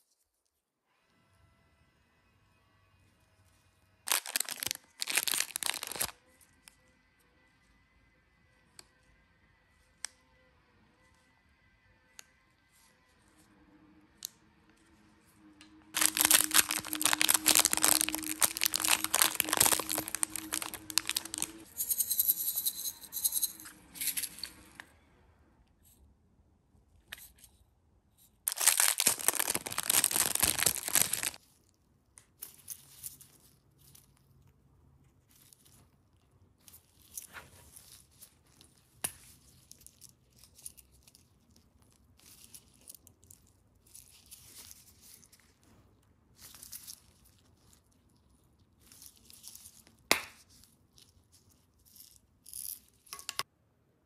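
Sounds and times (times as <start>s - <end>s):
plastic gloves crinkling: 4.1s - 6.2s, 15.9s - 21.7s, 28.5s - 31.6s.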